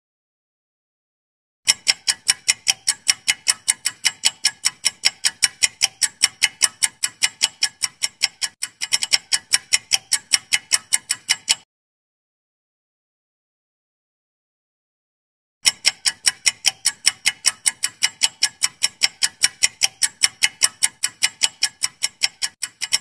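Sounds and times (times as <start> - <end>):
clock ticking: 1.7 - 11.7, 15.6 - 23.0.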